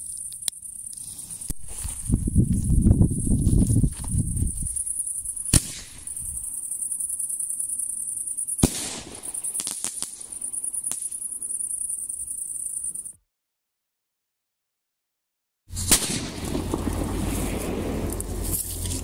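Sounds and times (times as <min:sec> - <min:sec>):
crickets chirping: 0:00.0 - 0:13.2, 0:16.3 - 0:19.0
firework crackles: 0:05.5 - 0:06.1, 0:08.6 - 0:11.2, 0:15.7 - 0:19.0
firework burst bang: 0:08.6 - 0:10.1, 0:15.7 - 0:18.1
firework shell launch bang: 0:15.7 - 0:17.3.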